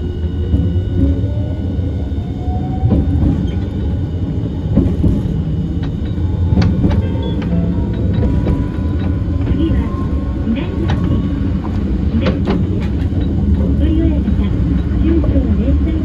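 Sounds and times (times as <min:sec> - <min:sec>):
tram wheels rumbling on rail: 0:00.0 - 0:16.0.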